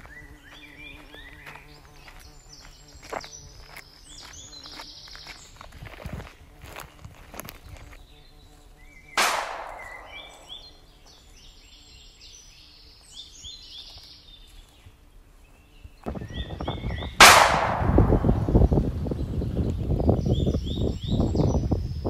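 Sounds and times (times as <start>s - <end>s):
bird chirping: 7.6s - 22.0s
gunshots with ringing tail: 9.2s - 10.5s, 17.2s - 18.6s.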